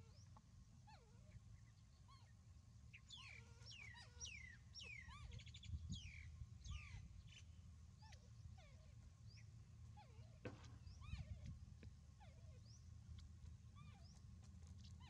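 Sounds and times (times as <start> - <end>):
low outdoor rumble: 0.0 - 15.0
bird trill: 2.9 - 9.5
bird chirping: 2.9 - 10.1.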